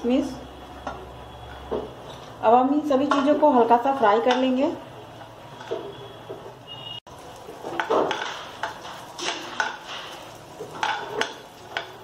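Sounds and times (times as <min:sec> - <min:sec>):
nuts frying in fat: 0:00.0 - 0:12.0
metal spoon scraping a pan: 0:03.0 - 0:06.6, 0:07.4 - 0:12.0.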